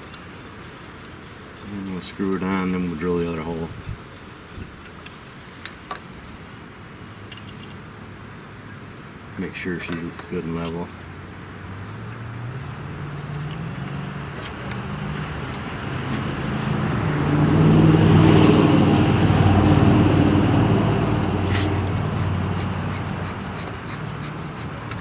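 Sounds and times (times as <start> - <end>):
vehicle engine driving past: 11.1 - 24.2.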